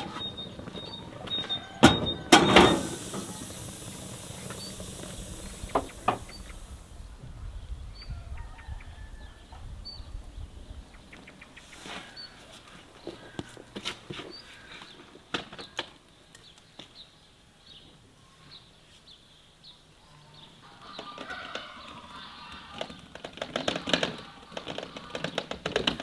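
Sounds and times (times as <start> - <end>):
footsteps: 0.0 - 6.7
faint bird chirps: 0.0 - 6.8
dense clatter: 1.8 - 6.8.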